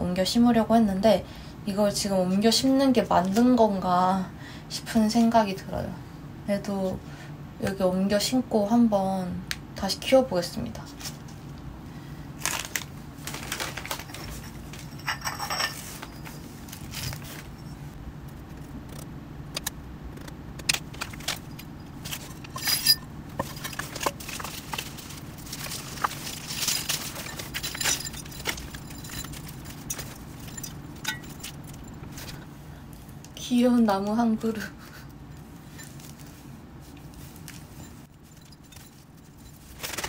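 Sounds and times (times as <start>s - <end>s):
low steady hum: 0.0s - 40.0s
newspaper rustling: 12.4s - 15.0s, 23.4s - 30.6s, 37.1s - 40.0s.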